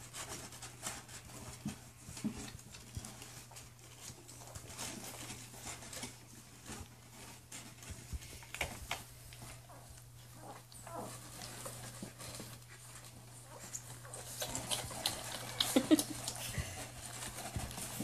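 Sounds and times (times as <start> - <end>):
puppy paws scratching on wood: 0.0 - 18.0.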